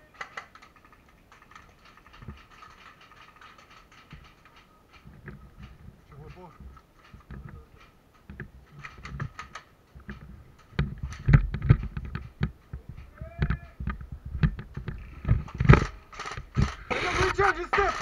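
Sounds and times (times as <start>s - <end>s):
gear clicks and knocks: 0.0s - 18.0s
heavy thumps: 10.0s - 18.0s.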